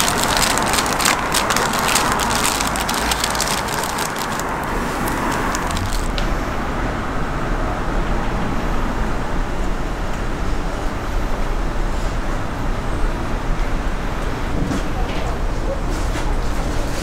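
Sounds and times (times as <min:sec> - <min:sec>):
paper wrapper crinkling: 0:00.0 - 0:06.2
steady background rumble: 0:00.0 - 0:15.6.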